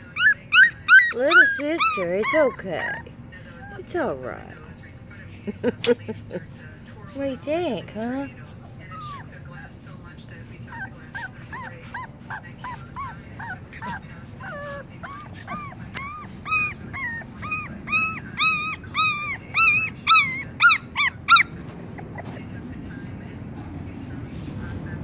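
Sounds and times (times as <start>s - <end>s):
puppy yelping and whimpering: 0.0s - 4.1s, 8.5s - 9.6s, 10.6s - 22.4s.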